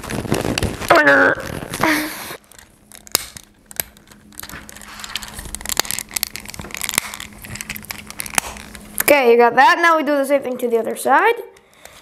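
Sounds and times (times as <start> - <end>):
plastic parts clicking and rubbing: 2.4 - 9.1.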